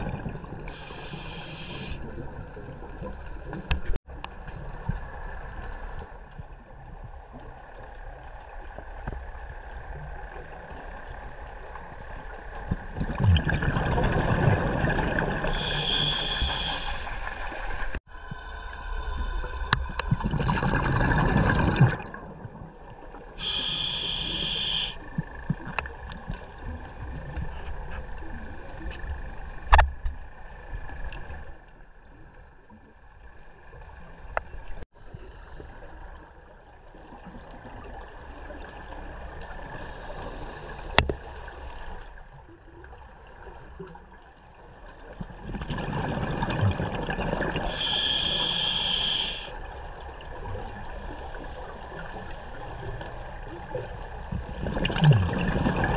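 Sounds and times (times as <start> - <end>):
hissing scuba inhalations: 0.6 - 2.2, 15.4 - 17.3, 23.4 - 25.0, 47.6 - 49.6
exhaled bubbles from regulator: 12.8 - 17.1, 18.6 - 22.7, 45.4 - 49.5, 54.4 - 55.9.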